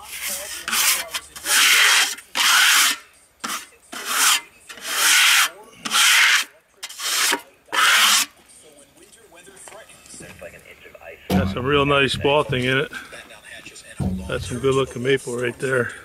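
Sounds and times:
hand tool scratching wood: 0:00.0 - 0:08.4.

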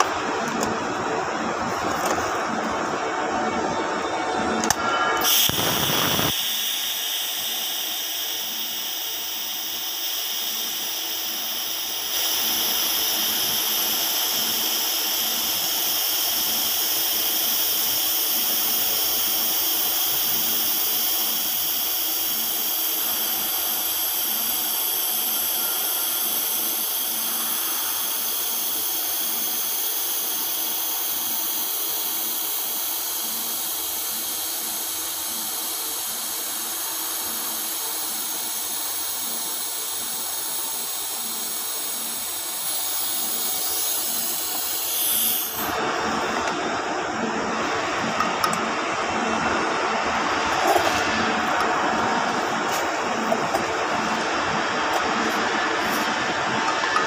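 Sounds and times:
welding arc hissing and whining: 0:04.5 - 0:57.0.

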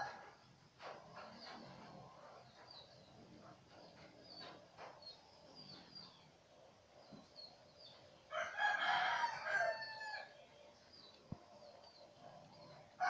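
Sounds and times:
small birds chirping: 0:00.3 - 0:13.0
rooster crowing: 0:08.3 - 0:10.4.

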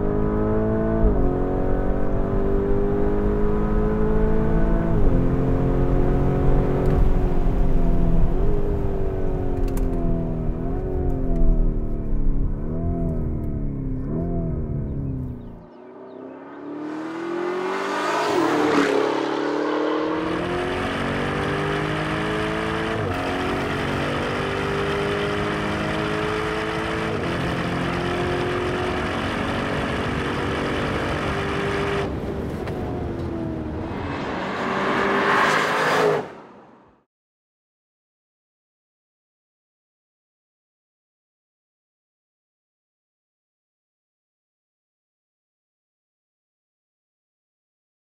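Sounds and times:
car engine accelerating hard: 0:00.0 - 0:36.9.

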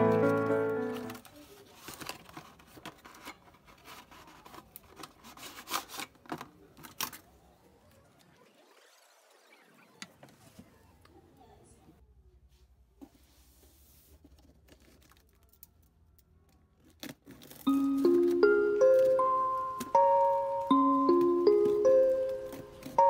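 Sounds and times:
background music: 0:00.0 - 0:01.2, 0:17.7 - 0:23.0.

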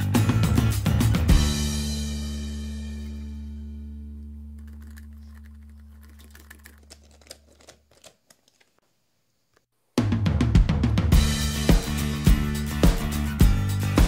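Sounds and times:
drum-kit music: 0:00.0 - 0:03.3, 0:10.0 - 0:14.0
screwdriver driving small screws: 0:04.6 - 0:08.7
held chord background music: 0:11.2 - 0:14.0.

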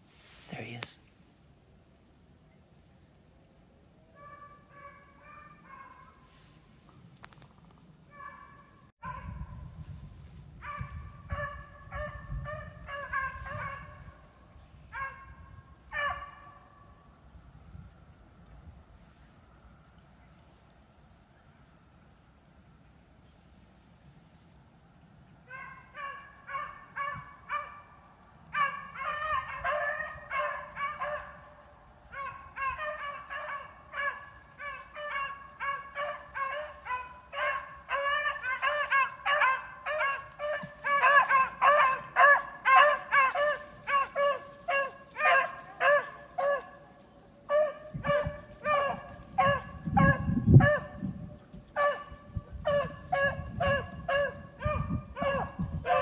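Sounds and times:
beagles baying: 0:10.8 - 0:14.1, 0:25.5 - 0:51.0, 0:51.7 - 0:56.0.

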